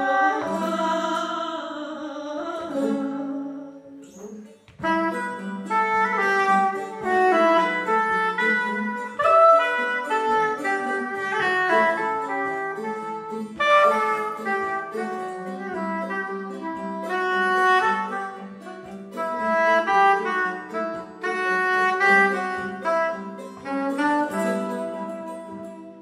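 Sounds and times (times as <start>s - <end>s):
plucked long-necked lute: 0.0s - 26.0s
soprano saxophone melody: 0.0s - 26.0s.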